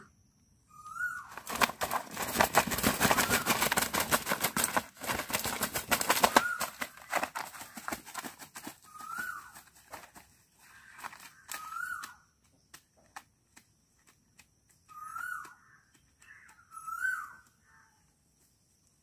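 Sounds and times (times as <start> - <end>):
chicken wings flapping and rustling: 1.2 - 14.4.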